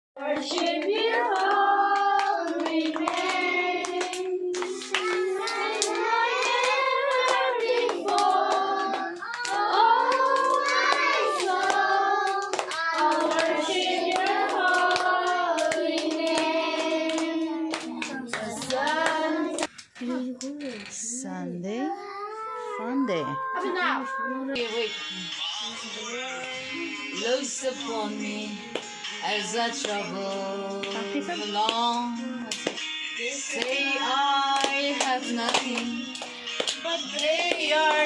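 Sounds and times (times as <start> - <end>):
children singing: 0.2 - 19.7, 33.2 - 38.0
children clapping hands: 0.2 - 20.5, 28.7 - 29.2, 29.8 - 38.0.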